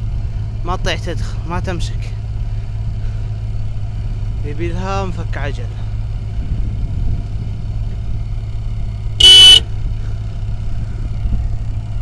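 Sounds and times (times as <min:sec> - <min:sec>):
vehicle engine idling: 0:00.0 - 0:12.0
car horn blast: 0:09.2 - 0:09.6.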